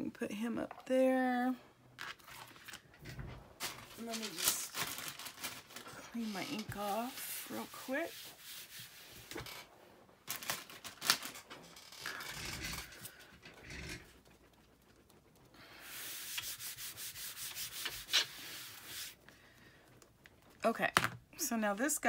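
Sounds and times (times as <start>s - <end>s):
rubbing on cutting mat: 6.0s - 9.6s, 15.7s - 19.2s.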